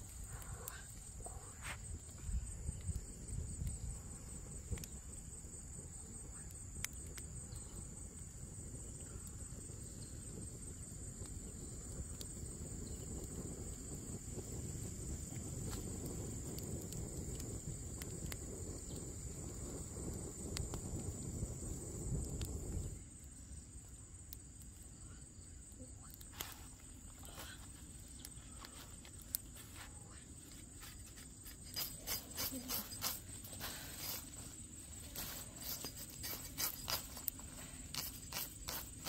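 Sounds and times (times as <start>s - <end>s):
campfire pops and crackles: 0.0s - 39.0s
high-pitched insect buzz: 30.9s - 39.0s.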